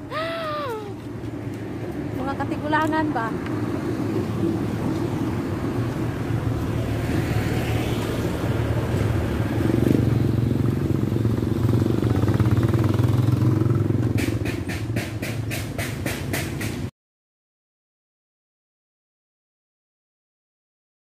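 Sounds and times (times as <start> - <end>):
motorcycle engine running: 9.0 - 14.7.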